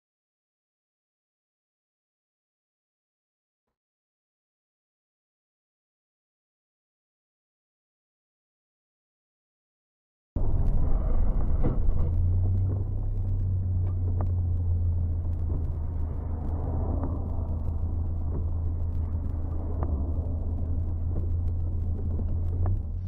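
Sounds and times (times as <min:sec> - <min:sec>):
car engine and road noise: 0:10.4 - 0:23.0.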